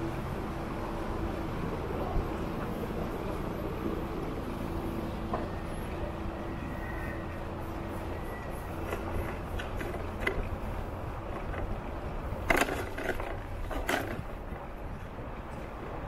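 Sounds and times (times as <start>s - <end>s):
low rumble of riding: 0.0s - 16.0s.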